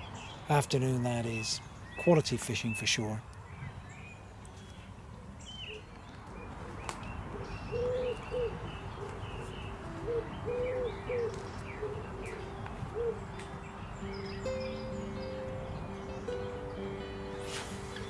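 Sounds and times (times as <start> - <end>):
small songbirds chirping: 0.0 - 18.0
pigeon cooing: 7.4 - 13.2.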